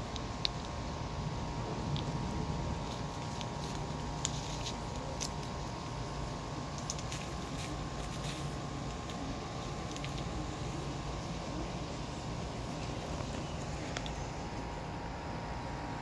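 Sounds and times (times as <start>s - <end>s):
faint hum: 0.0s - 16.0s
low outdoor rumble: 0.0s - 16.0s.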